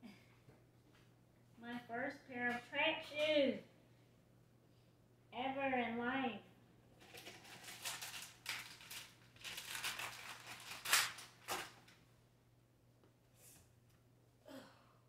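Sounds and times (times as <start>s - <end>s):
packaging rustling and crinkling: 7.0s - 12.0s.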